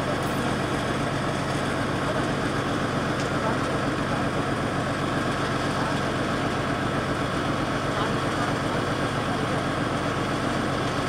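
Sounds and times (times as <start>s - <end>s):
diesel locomotive engine chugging: 0.0s - 11.0s.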